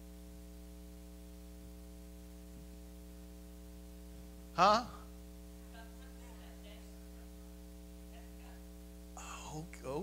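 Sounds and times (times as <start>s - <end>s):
electrical mains hum: 0.0s - 10.0s
man speaking: 4.5s - 5.2s, 9.2s - 10.0s.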